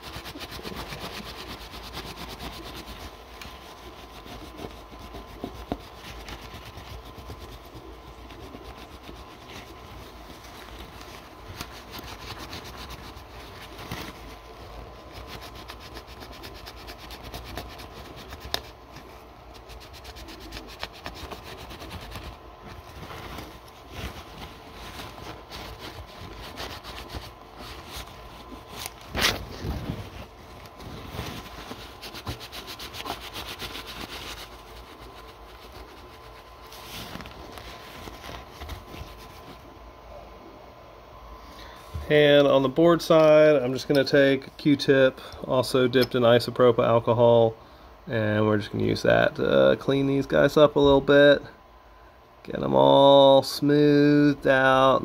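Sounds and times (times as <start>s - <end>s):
paper towel scrubbing circuit board: 0.0s - 40.1s.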